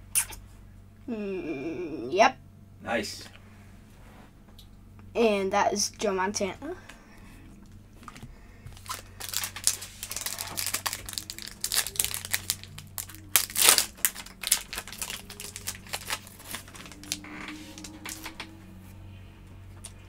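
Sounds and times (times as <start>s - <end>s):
foil wrapper crinkling and tearing: 8.7s - 18.5s.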